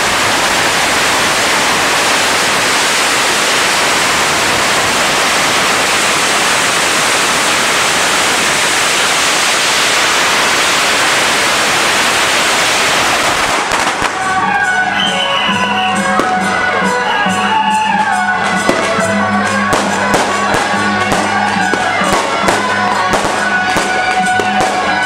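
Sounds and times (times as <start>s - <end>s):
firecrackers crackling: 0.0s - 25.0s
music: 13.6s - 25.0s.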